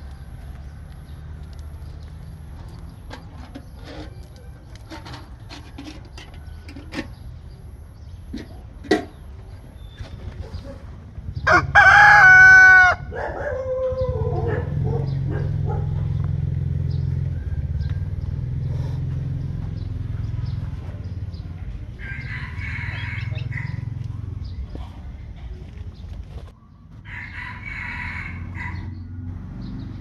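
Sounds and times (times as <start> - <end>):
rooster crowing: 11.4 - 14.5, 17.2 - 18.4, 22.0 - 24.0, 27.0 - 29.3.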